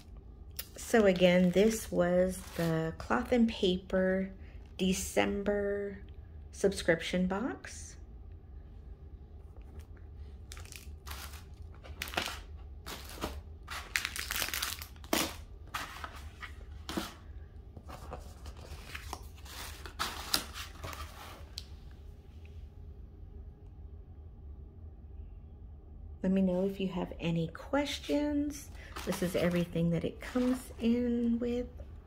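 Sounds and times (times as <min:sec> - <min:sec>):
tissue paper and plastic crinkling: 0:00.7 - 0:03.1, 0:10.4 - 0:17.2, 0:17.8 - 0:21.6, 0:28.7 - 0:31.3.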